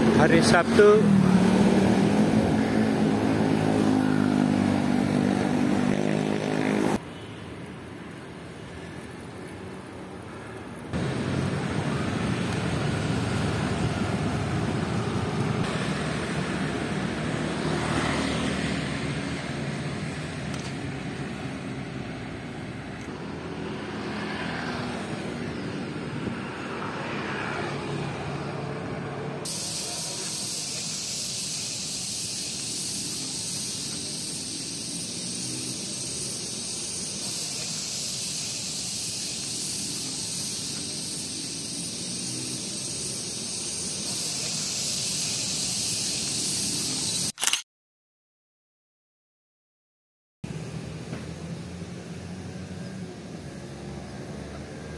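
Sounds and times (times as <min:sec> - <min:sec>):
city street traffic: 0:00.0 - 0:47.6, 0:50.4 - 0:54.9
constant high hiss: 0:29.5 - 0:47.4.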